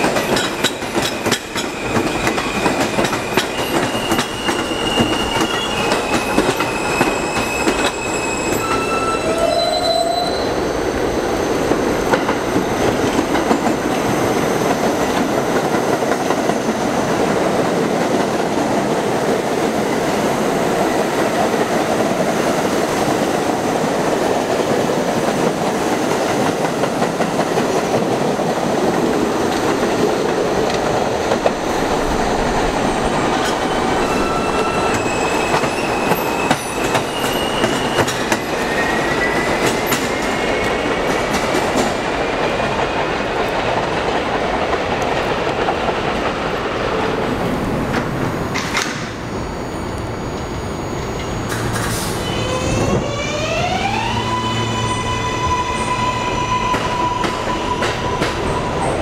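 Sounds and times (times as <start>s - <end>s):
train wheels clattering over rails: 0.0s - 8.8s, 11.6s - 49.2s, 56.6s - 59.0s
high wheel squeal: 0.3s - 11.7s, 31.6s - 41.1s, 49.0s - 59.0s.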